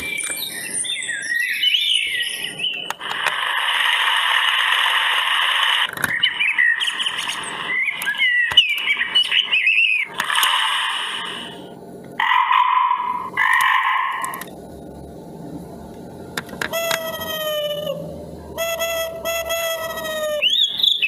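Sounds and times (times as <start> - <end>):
recorded bird chirps: 0.0 - 3.0, 6.0 - 10.2, 16.7 - 21.0
baby bird tweeting: 6.1 - 10.1, 16.7 - 21.0.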